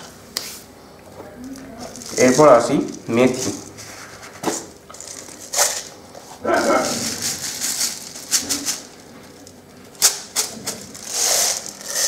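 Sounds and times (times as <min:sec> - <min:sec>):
seeds rattling in plastic jar: 0:10.8 - 0:12.0.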